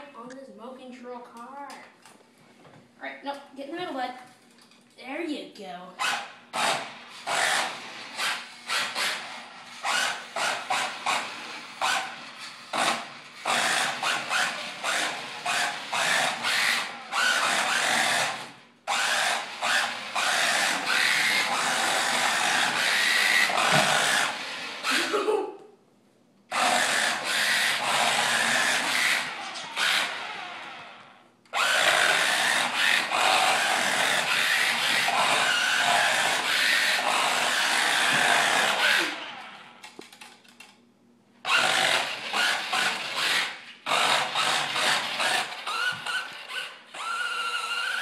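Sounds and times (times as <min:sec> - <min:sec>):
toy car motor whirring: 0:06.0 - 0:25.3, 0:26.5 - 0:30.9, 0:31.5 - 0:39.6, 0:41.5 - 0:48.0.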